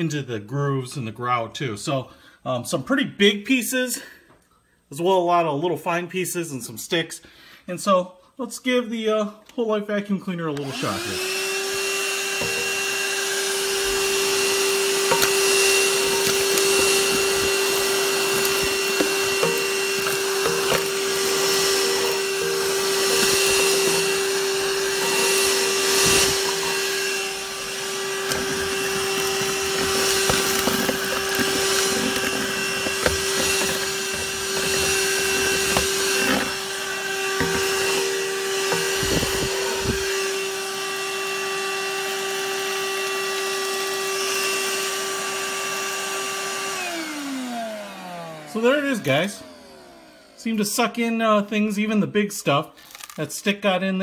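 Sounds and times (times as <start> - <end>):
handheld vacuum cleaner running: 10.5 - 50.9
debris rattling up vacuum nozzle: 10.6 - 41.7.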